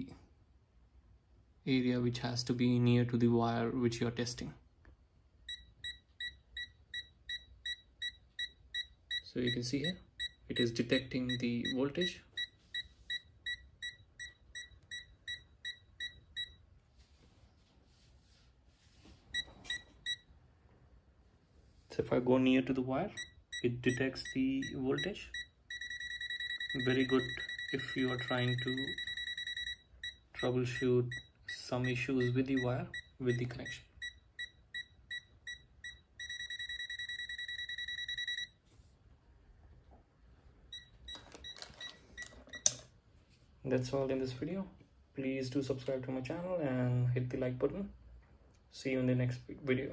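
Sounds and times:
multimeter beeping quickly: 5.5 - 16.6, 23.2 - 38.6
handling noise: 41.0 - 42.8.

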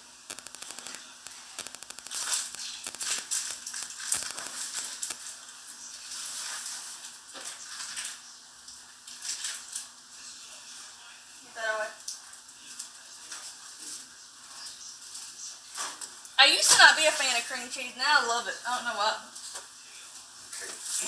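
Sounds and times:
rapid clicks: 0.3 - 5.2
food packaging crinkling: 0.3 - 8.3.

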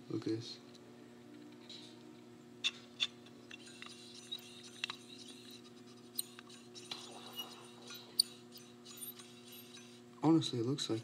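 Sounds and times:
steady low hum: 0.0 - 11.0
fingers rubbing and tapping glass: 3.5 - 10.0.

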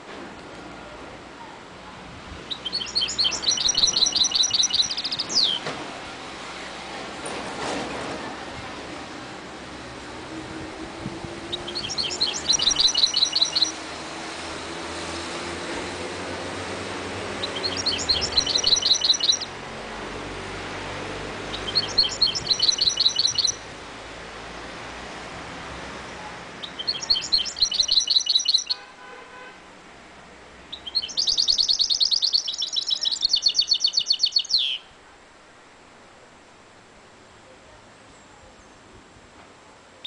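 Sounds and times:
finch singing trilled phrases: 2.4 - 5.6, 11.5 - 13.8, 17.4 - 19.5, 21.5 - 23.7, 26.6 - 28.8, 30.7 - 34.9.

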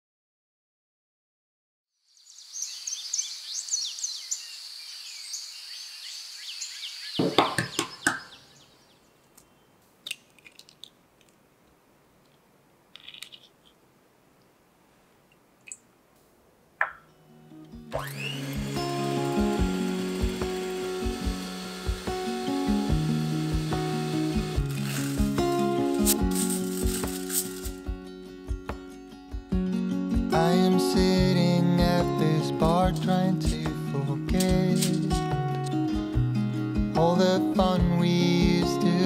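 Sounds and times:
birds chirping: 2.2 - 9.8
electric hand mixer: 17.9 - 27.2.

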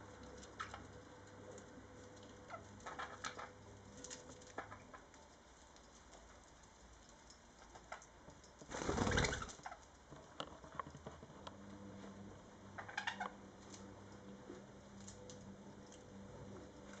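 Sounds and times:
birds scratching on straw toy: 0.2 - 8.1, 8.7 - 9.9.

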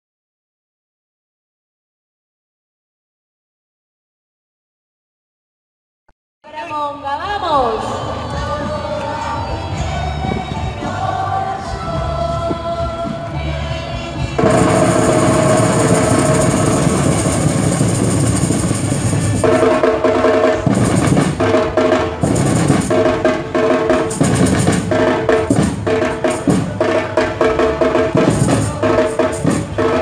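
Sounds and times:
steady pitched tone: 14.4 - 20.1
drum ensemble playing: 14.4 - 30.0.

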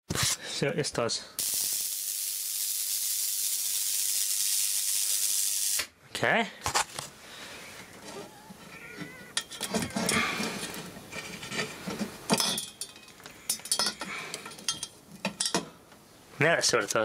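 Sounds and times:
glass tube knocks and clinks: 12.3 - 15.7.

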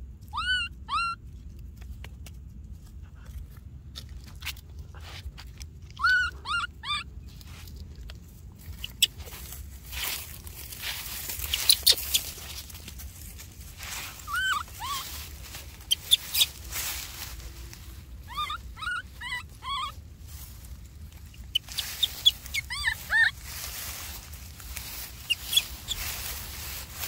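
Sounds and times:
baby monkey whimpering cries: 0.3 - 1.2, 5.9 - 7.1, 11.5 - 12.4, 14.1 - 16.6, 18.2 - 20.0, 21.3 - 23.5, 25.2 - 26.0.

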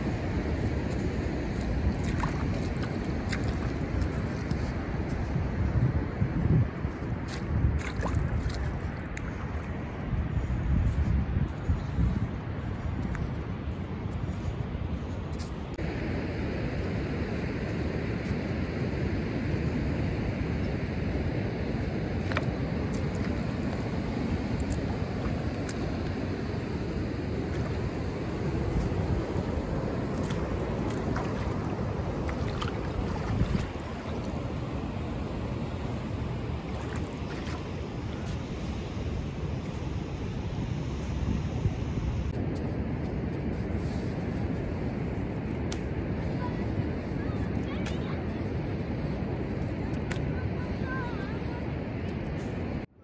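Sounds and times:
wind buffeting microphone: 0.0 - 52.9
distant surf hiss: 13.5 - 52.9.

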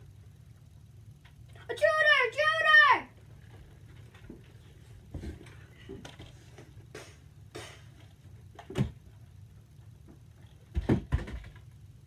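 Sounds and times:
low hum: 0.0 - 2.1.

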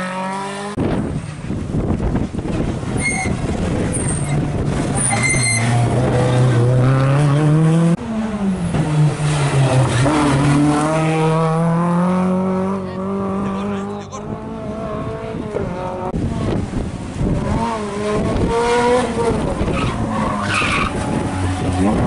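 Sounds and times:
rally car engines revving: 0.0 - 22.0
high-pitched squeals: 5.0 - 5.9.

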